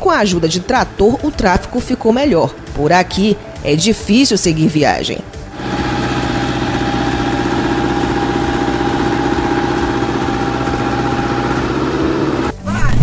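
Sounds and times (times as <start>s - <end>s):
diesel engine idling: 5.4s - 12.5s
thin steady whine: 5.6s - 12.5s.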